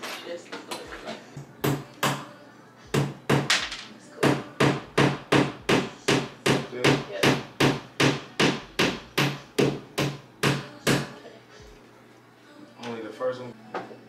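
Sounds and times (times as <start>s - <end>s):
hammer striking a nail: 4.2s - 11.1s.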